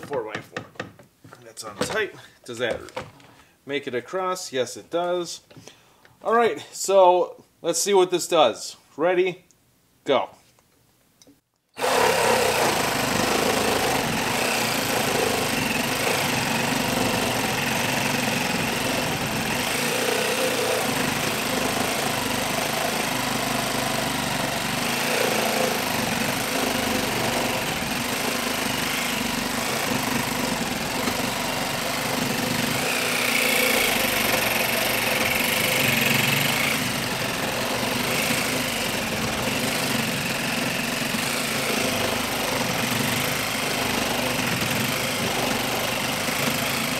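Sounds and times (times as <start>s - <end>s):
reciprocating saw cutting wood: 11.8s - 46.9s.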